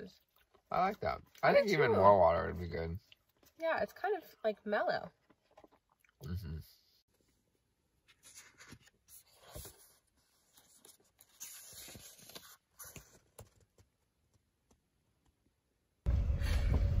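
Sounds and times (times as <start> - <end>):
book pages rustling: 8.0 - 14.8.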